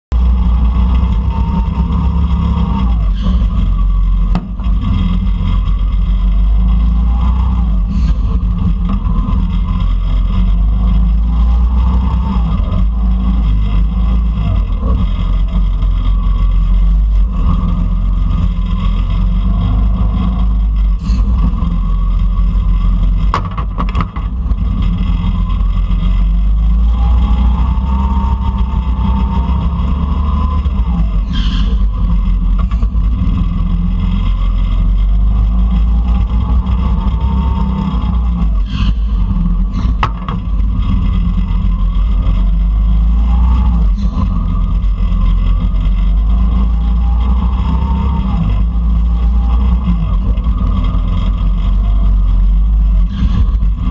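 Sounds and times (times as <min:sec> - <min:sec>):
go-kart engine rumble: 0:00.0 - 0:53.9
sharp knocks: 0:23.3 - 0:24.3.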